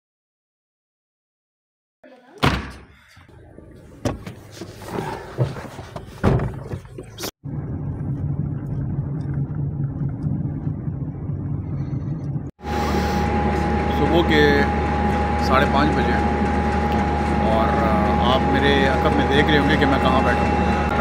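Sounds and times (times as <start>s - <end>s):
car engine and road noise in cabin: 3.5s - 12.6s
loud knocks and thuds: 5.4s - 7.3s.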